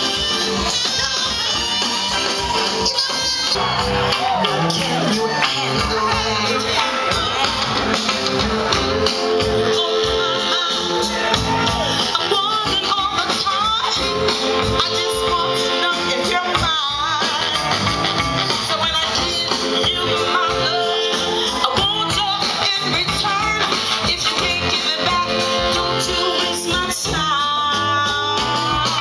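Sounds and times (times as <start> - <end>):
drum kit: 0.0 - 29.0
electric guitars: 0.0 - 29.0
live soul band playing: 0.0 - 29.0.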